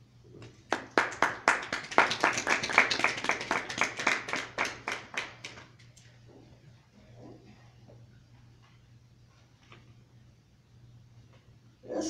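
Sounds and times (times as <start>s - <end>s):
audience applauding: 0.5s - 5.8s.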